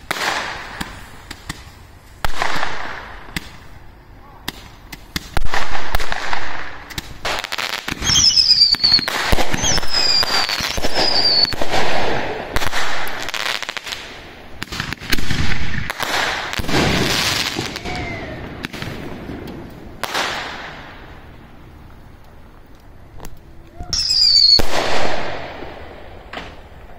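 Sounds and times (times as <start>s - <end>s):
fireworks bangs and crackling: 0.0s - 26.9s
falling firework whistles: 7.3s - 13.9s, 23.9s - 26.6s.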